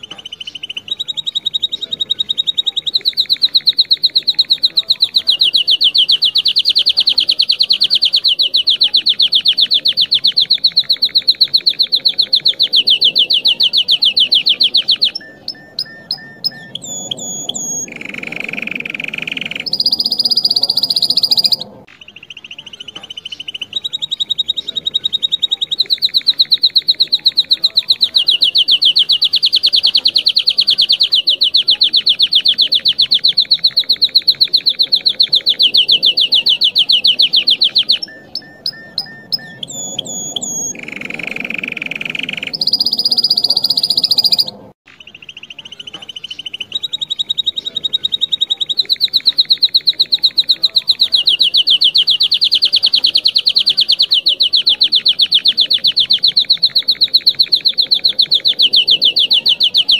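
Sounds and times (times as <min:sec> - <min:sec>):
canary chirps: 0:00.0 - 0:59.9
canary trilling: 0:00.0 - 0:59.9.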